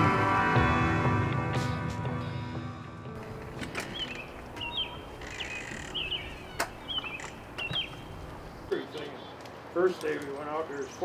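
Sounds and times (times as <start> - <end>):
background music: 0.0 - 5.3
sharp clicks: 3.2 - 8.0
faint outdoor ambience: 3.2 - 11.0.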